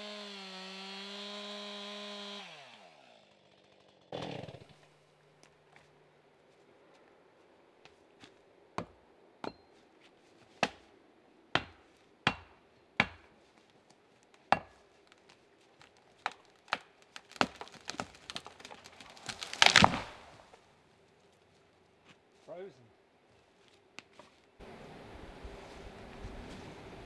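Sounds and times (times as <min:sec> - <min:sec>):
axe chopping tree trunk: 0:10.6 - 0:10.9, 0:11.6 - 0:13.3, 0:14.5 - 0:14.9, 0:15.9 - 0:20.2
wood crackling and snapping: 0:13.6 - 0:20.6
tree crashing to the ground: 0:16.6 - 0:20.5.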